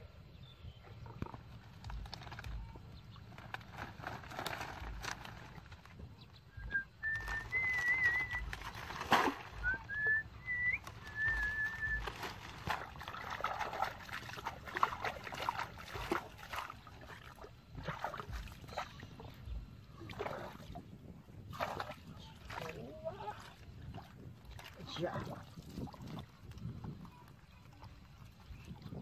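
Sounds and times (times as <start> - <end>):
dry palm fronds rustling: 1.6 - 6.3, 6.9 - 15.1
person whistling: 6.6 - 8.5, 9.6 - 12.0
water splashing: 7.0 - 20.8, 21.4 - 29.0.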